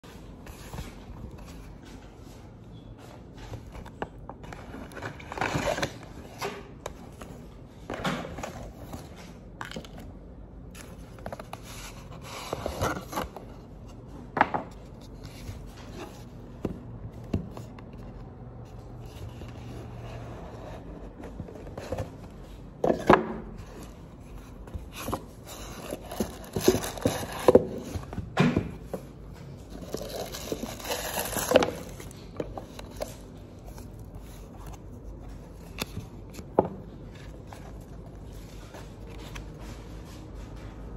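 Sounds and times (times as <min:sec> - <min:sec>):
cardboard boxes and paper bag handled: 0:10.6 - 0:14.1, 0:14.7 - 0:40.9.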